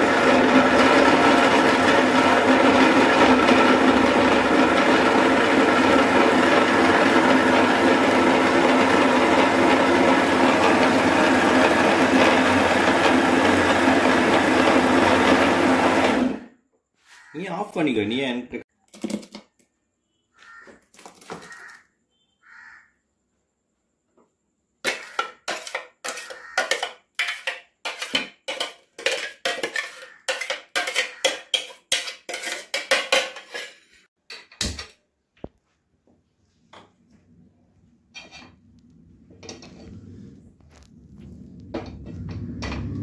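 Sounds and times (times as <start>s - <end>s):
spoon scraping metal jar: 24.8s - 34.1s.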